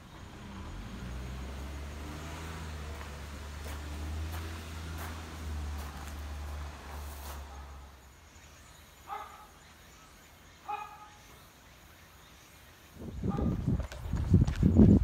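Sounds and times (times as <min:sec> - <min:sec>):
faint dog barking: 0:09.0 - 0:09.6, 0:10.6 - 0:11.2.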